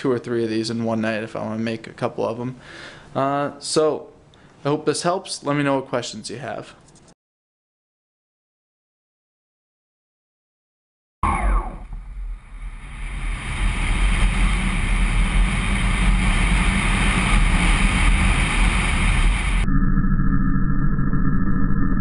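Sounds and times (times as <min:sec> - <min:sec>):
electric motor and propeller buzz: 0:11.8 - 0:19.6
wind rushing over microphone: 0:12.6 - 0:19.6.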